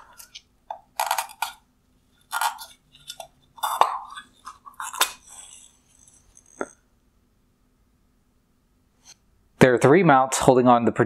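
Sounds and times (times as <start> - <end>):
plastic crackling and scraping: 0.0 - 6.7.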